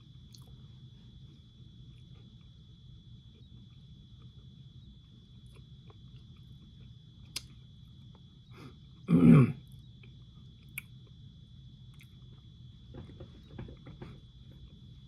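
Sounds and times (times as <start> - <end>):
low room hum: 0.0 - 15.0
man clearing throat: 9.1 - 9.6.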